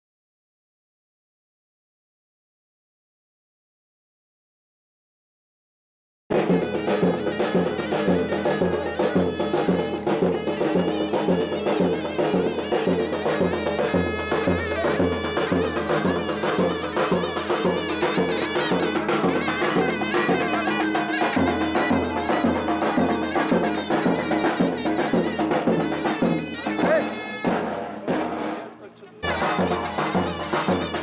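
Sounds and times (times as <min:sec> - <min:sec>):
shrill double-reed pipe melody: 0:06.3 - 0:28.6, 0:29.2 - 0:31.0.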